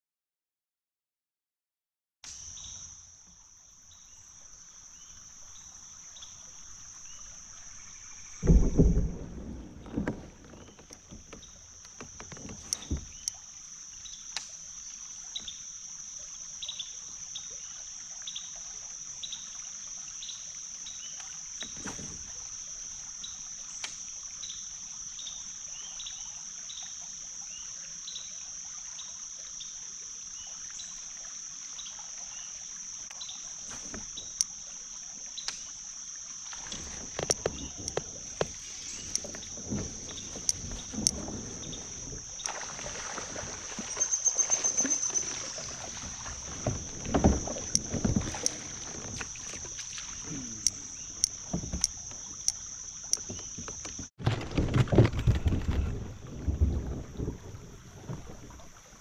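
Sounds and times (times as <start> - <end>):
water drips: 6.1 - 27.6, 30.3 - 54.1
knocks against kayak hull: 8.4 - 13.2, 44.9 - 50.2, 51.3 - 52.4.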